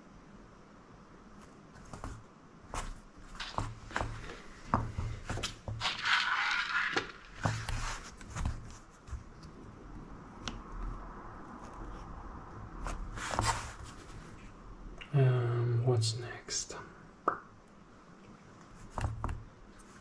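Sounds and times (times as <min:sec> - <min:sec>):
scraping rustle: 0:02.8 - 0:09.2, 0:12.8 - 0:14.5.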